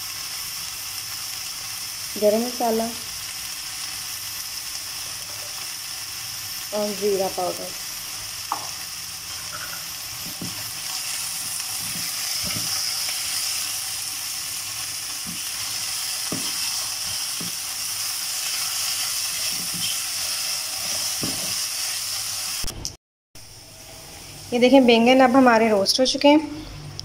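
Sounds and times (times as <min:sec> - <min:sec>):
food sizzling in oil: 0:00.0 - 0:22.7
spatula scraping a pan: 0:15.2 - 0:17.6, 0:18.4 - 0:21.6.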